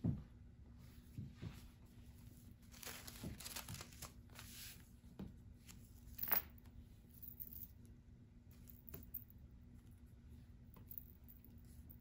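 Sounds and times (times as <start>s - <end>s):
paper rustling and crinkling: 2.6s - 4.9s.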